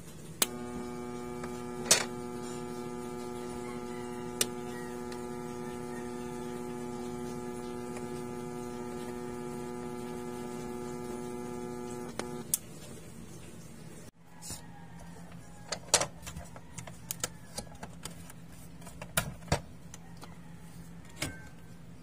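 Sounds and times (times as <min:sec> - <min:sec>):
radio speaker buzzing: 0:00.4 - 0:12.5.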